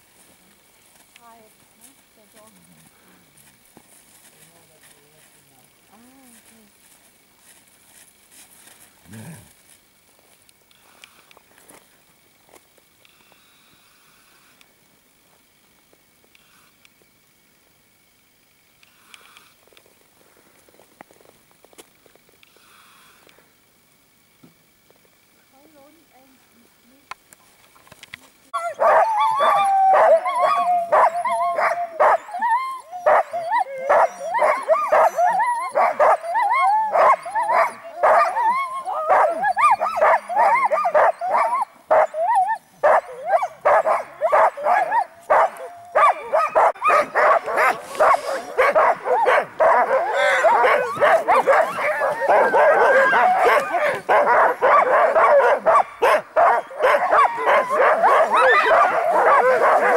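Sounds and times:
huskies barking: 28.6 - 59.9.

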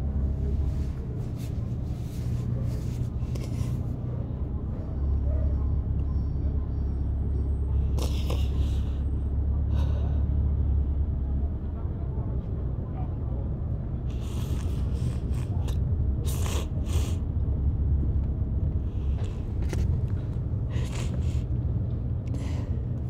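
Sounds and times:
car cabin rumble: 14.1 - 23.0.

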